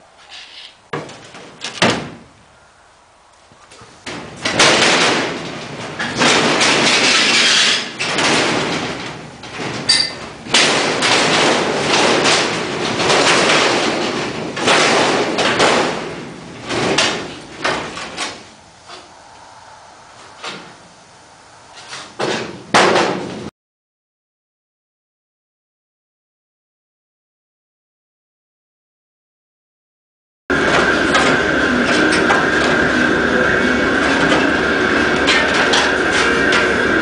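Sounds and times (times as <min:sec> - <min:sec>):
sheet aluminium rattling and scraping: 0:00.2 - 0:02.4, 0:03.7 - 0:23.5, 0:30.5 - 0:37.0.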